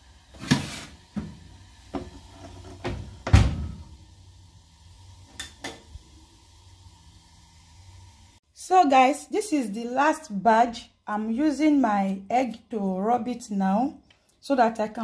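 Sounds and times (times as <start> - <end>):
oven door and tray knocks: 2.8 - 3.8.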